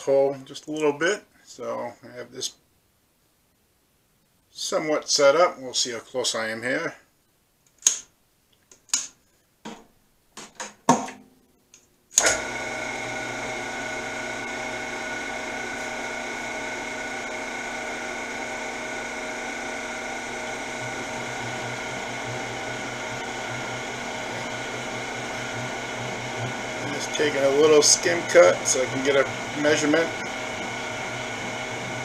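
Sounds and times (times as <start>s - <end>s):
lathe spindle motor whining: 12.2s - 32.0s.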